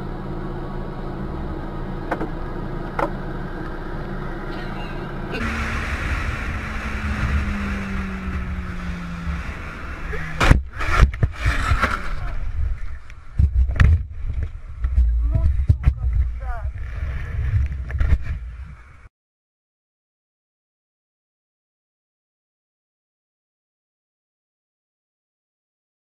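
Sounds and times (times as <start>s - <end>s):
car engine hum: 0.0s - 19.1s
road and wind noise: 0.0s - 19.1s.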